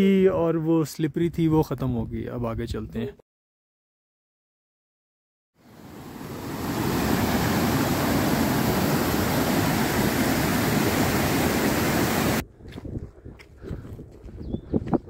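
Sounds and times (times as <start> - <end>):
fast-flowing stream rushing: 5.6 - 12.4.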